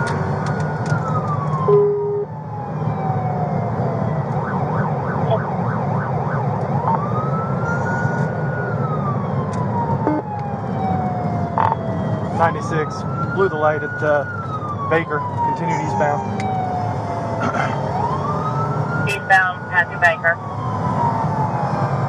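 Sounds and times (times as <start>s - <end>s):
engine and road noise: 0.0s - 22.0s
police siren wailing: 0.0s - 22.0s
short beep: 1.7s - 2.3s.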